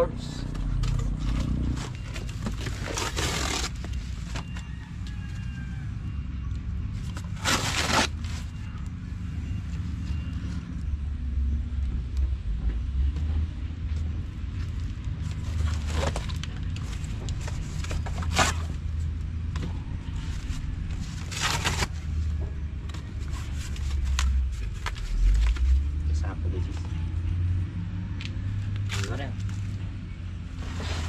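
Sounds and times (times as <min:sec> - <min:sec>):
cardboard rustling and scraping: 0:00.7 - 0:05.5, 0:06.9 - 0:08.8, 0:14.6 - 0:26.0, 0:30.4 - 0:31.0
steady low rumble: 0:08.6 - 0:31.0.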